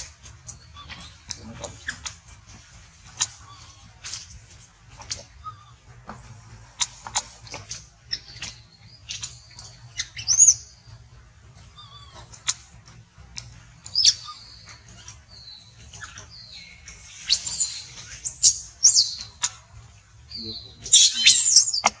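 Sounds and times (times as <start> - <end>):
shrill animal chirps and squeaks: 0.5 - 2.2, 3.1 - 4.0, 7.6 - 10.8, 11.6 - 12.6, 13.8 - 19.7, 20.5 - 22.0.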